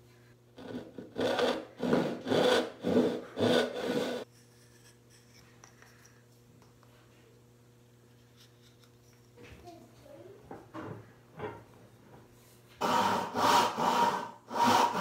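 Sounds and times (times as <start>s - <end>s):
hand tool scraping wood: 0.6s - 5.0s, 12.8s - 15.0s.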